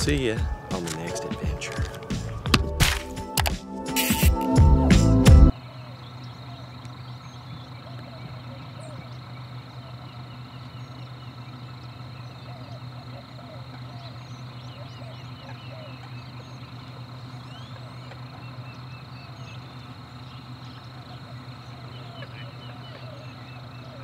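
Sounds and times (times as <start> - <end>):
steady low hum: 0.0 - 24.0
coots clucking and squeaking: 5.9 - 24.0.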